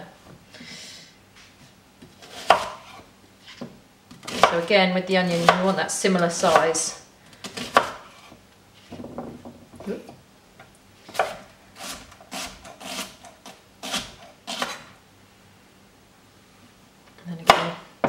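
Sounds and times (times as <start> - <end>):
knife slicing onion: 2.1 - 3.6, 4.2 - 4.7, 5.3 - 8.4, 11.0 - 15.0.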